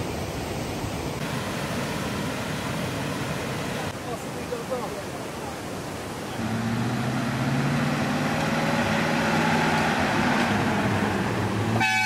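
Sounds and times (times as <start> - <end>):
river rushing: 0.0 - 12.0
truck crossing wooden plank bridge: 6.4 - 12.0.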